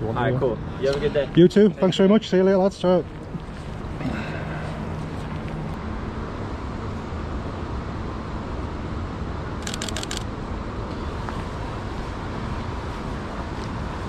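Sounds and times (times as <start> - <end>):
street rumble: 0.0 - 14.0
camera shutter burst: 9.6 - 10.3.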